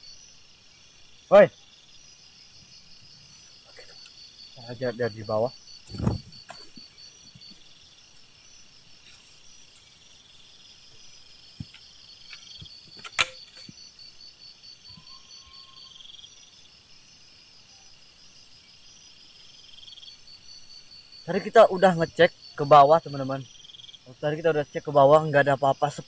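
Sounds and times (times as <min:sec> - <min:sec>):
buzzing insect trill: 0:00.0 - 0:26.0
night insects chirping: 0:00.0 - 0:26.0
faint ticks: 0:03.7 - 0:04.2
sharp click: 0:12.3 - 0:13.7.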